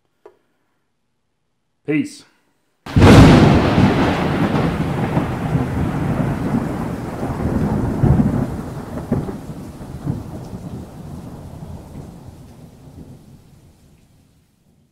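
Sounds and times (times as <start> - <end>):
thunder rumbling: 2.9 - 14.0
rain hissing: 2.9 - 14.9.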